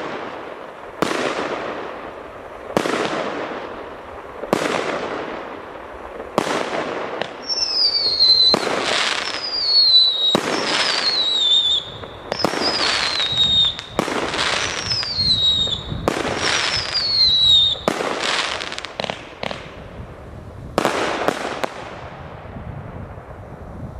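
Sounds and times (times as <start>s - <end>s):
fireworks shots: 0.0s - 23.7s
falling firework whistles: 6.3s - 19.7s.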